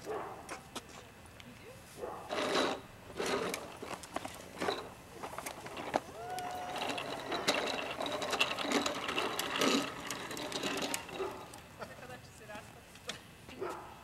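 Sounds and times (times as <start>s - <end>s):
bikes rolling on asphalt: 2.2s - 13.2s.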